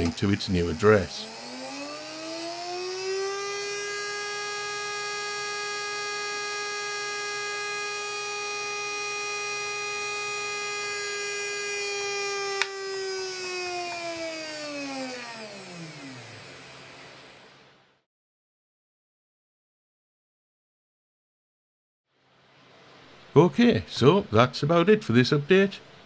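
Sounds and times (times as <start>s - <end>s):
small electric motor whining: 0.0s - 17.5s
click: 12.6s - 12.8s.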